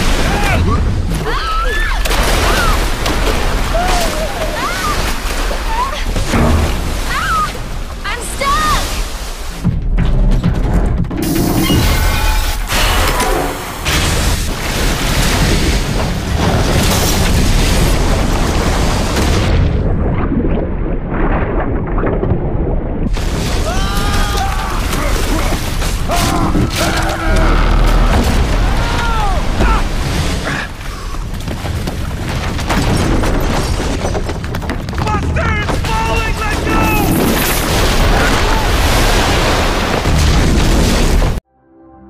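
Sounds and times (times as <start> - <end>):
debris crashing and cracking: 0.0 - 8.2, 9.7 - 41.4
water gushing in torrents: 0.0 - 9.7, 11.4 - 33.6, 35.8 - 41.4
deep rumble: 9.6 - 35.6.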